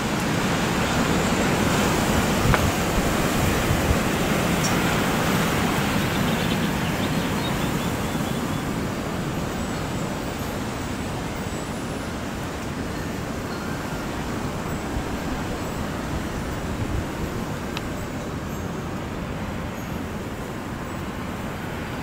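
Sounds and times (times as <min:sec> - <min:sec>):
strong wind gusting: 0:00.0 - 0:11.5, 0:12.1 - 0:22.0
wind buffeting microphone: 0:00.0 - 0:11.5, 0:12.5 - 0:22.0.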